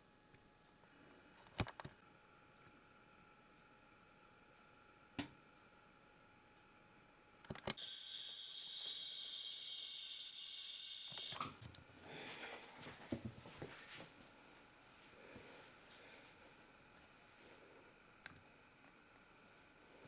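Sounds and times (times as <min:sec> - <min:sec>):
dental scaler hissing and whining: 0:07.8 - 0:11.6.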